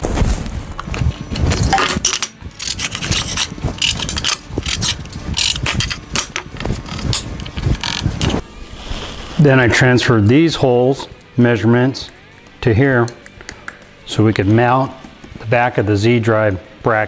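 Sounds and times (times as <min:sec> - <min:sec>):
metal parts clinking on wood: 0:01.6 - 0:08.3.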